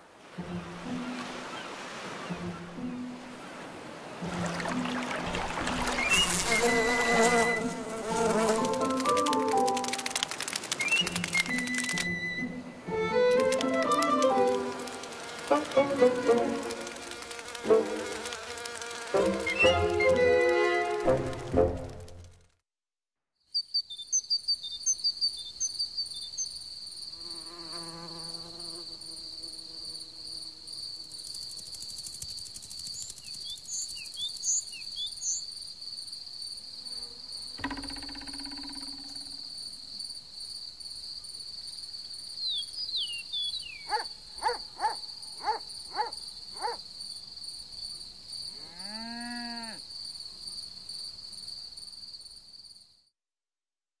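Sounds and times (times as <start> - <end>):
insects buzzing past: 0.0 - 22.4, 23.8 - 53.0
cricket trill: 4.5 - 20.1, 23.6 - 53.0
arching call: 19.1 - 21.8
short evenly spaced calls: 42.4 - 46.8.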